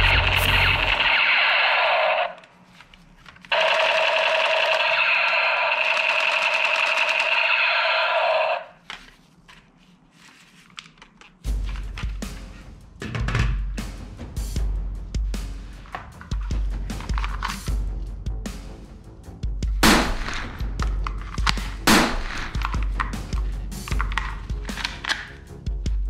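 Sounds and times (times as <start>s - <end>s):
toy gun electronic rapid-fire: 0.0s - 2.4s, 3.5s - 8.7s
music with drums: 11.5s - 24.9s
plastic clicks: 22.5s - 25.4s.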